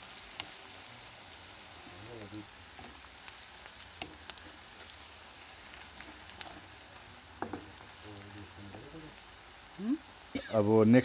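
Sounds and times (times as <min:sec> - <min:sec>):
wooden spatula stirring: 0:00.0 - 0:09.7
onions sizzling in a frying pan: 0:00.0 - 0:11.0.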